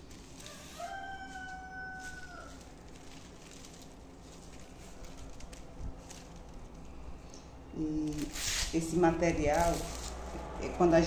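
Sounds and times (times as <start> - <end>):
straw strips rustling and ticking: 0.0 - 11.0
rooster crowing: 0.4 - 3.5.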